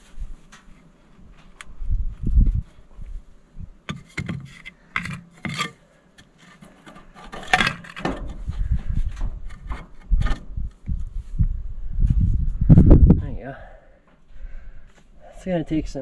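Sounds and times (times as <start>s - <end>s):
metal and wood knocks and scrapes: 3.9s - 5.8s, 6.4s - 10.6s.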